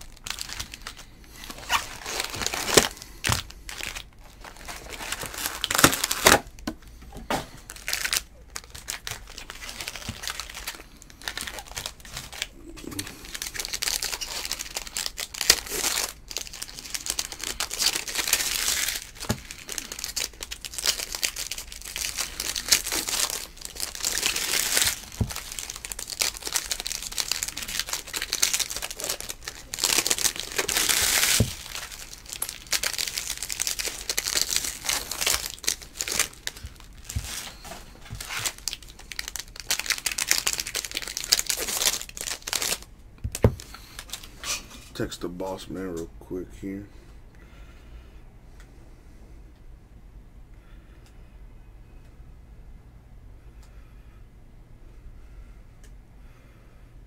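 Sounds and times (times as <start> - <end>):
foil pack tearing: 0.0 - 6.6, 7.6 - 44.6
foil wrapper crinkling: 0.0 - 45.6.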